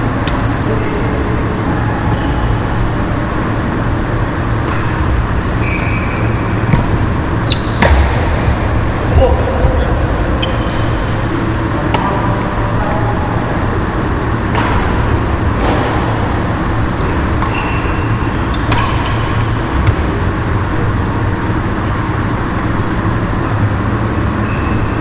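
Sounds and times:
loud steady rumbling: 0:00.0 - 0:25.0
racket hitting shuttlecock: 0:04.6 - 0:05.2, 0:06.6 - 0:09.3, 0:11.8 - 0:12.4, 0:14.4 - 0:16.3, 0:17.0 - 0:20.1
shoe squeaks on court: 0:05.4 - 0:06.8, 0:07.5 - 0:07.9, 0:24.4 - 0:25.0.

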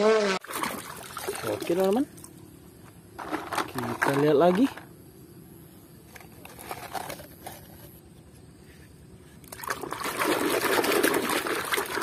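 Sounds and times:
water splashing and sloshing: 0:00.3 - 0:02.6, 0:09.4 - 0:12.0.

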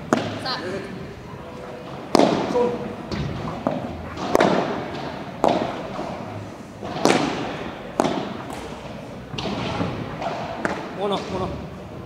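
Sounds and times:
padel ball hits: 0:06.8 - 0:08.8.

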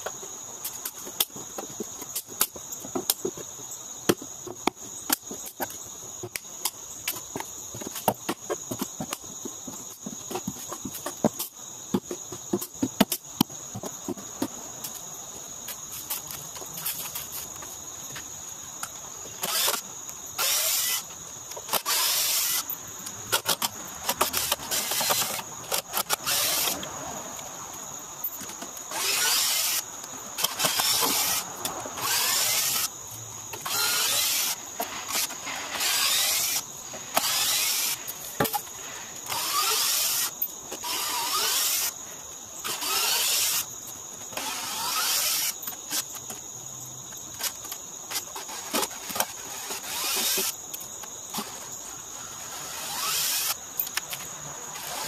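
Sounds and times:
drill motor bursts: 0:19.4 - 0:19.8, 0:20.4 - 0:21.0, 0:21.7 - 0:22.7, 0:23.3 - 0:26.8, 0:28.9 - 0:29.8, 0:30.4 - 0:32.9, 0:33.6 - 0:38.0, 0:39.2 - 0:41.9, 0:42.6 - 0:43.7, 0:44.3 - 0:46.0, 0:48.4 - 0:50.5, 0:52.4 - 0:53.6.

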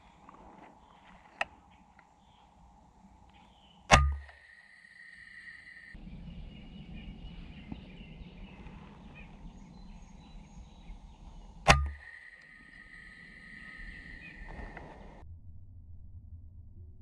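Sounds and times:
faint outdoor background noise: 0:00.0 - 0:15.2
air rifle shot: 0:03.9 - 0:04.5, 0:11.6 - 0:14.9
faint high ringing: 0:11.7 - 0:14.5.

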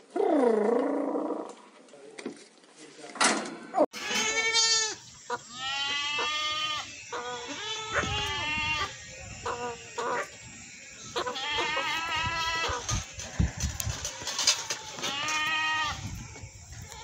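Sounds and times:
goat bleating: 0:04.0 - 0:10.3, 0:11.1 - 0:16.0.

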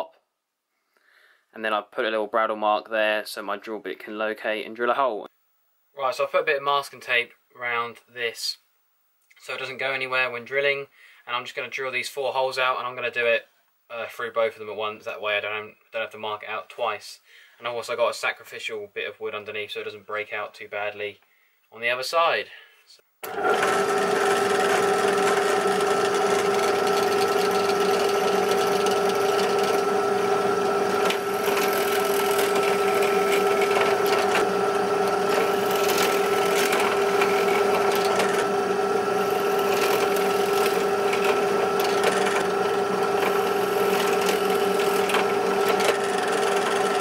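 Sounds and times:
drill bit boring through wood: 0:23.2 - 0:47.0
drill press motor hum: 0:23.2 - 0:47.0.

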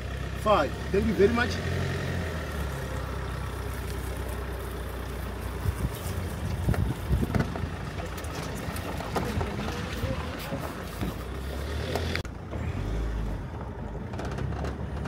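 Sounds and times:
vehicle engine idling: 0:00.0 - 0:15.0
knocks and rattles: 0:06.4 - 0:11.2, 0:13.5 - 0:15.0.

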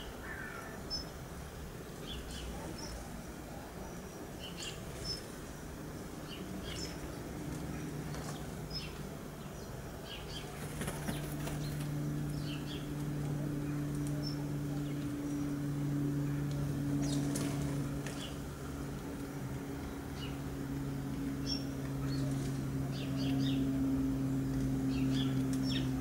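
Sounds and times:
sparrows chirping: 0:00.0 - 0:26.0
steady low hum: 0:00.0 - 0:26.0
wings fluttering: 0:10.2 - 0:15.7, 0:16.3 - 0:18.5.

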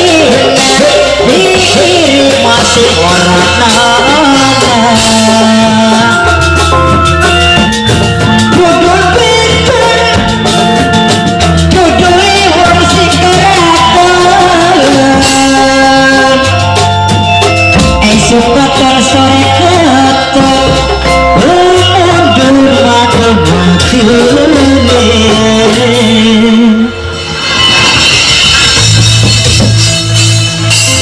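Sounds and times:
person singing ornamented vocal: 0:00.0 - 0:06.6, 0:08.5 - 0:10.9, 0:11.7 - 0:16.8, 0:17.9 - 0:27.2
drum strokes: 0:00.0 - 0:26.4, 0:27.1 - 0:31.0
bass holding notes: 0:00.0 - 0:31.0.

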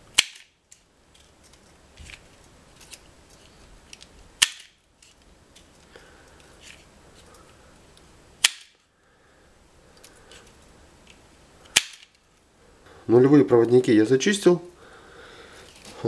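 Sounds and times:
wire stripper snapping: 0:00.1 - 0:00.6, 0:04.4 - 0:04.8, 0:08.4 - 0:08.8, 0:11.7 - 0:12.2
rustle of wires handled: 0:00.7 - 0:08.1, 0:15.6 - 0:16.0.

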